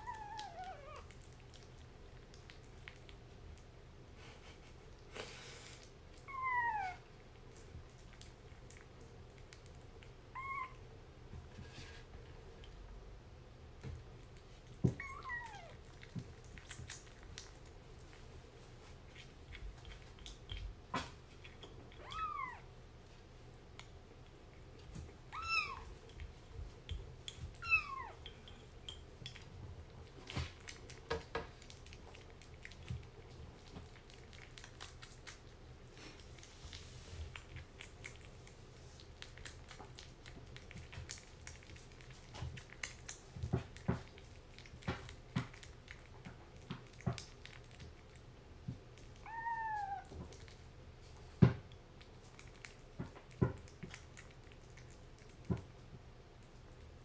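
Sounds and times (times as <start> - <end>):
kitten eating from ceramic bowl: 0.0 - 57.0
kitten meowing: 6.3 - 7.0, 10.3 - 10.8, 15.0 - 15.7, 22.0 - 22.6, 25.3 - 25.9, 27.6 - 28.2, 49.2 - 50.1.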